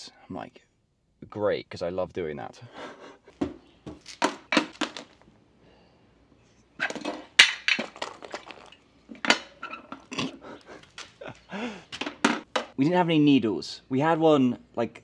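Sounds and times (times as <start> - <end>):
small hard objects clinking: 6.8 - 8.8.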